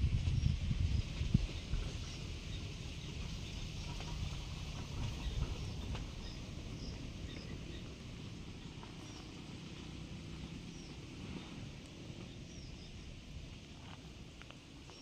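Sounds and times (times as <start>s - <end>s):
low uneven rumble: 0.0s - 15.0s.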